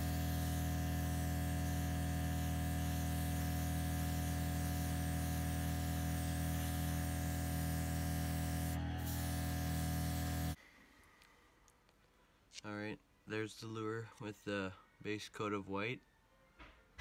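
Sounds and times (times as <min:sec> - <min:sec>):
airbrush hissing: 0:00.0 - 0:10.6
compressor humming: 0:00.0 - 0:10.6.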